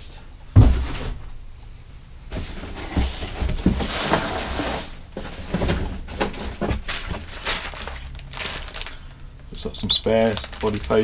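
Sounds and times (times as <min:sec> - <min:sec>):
hollow knocks and thuds: 0:00.5 - 0:01.2
cardboard sliding and scraping: 0:02.3 - 0:06.6.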